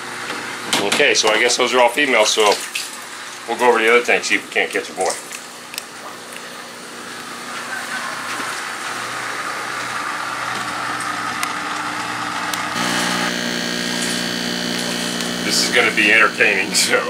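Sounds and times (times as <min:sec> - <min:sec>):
motor humming and hissing: 0:08.6 - 0:17.0
pitched hum: 0:12.7 - 0:17.0.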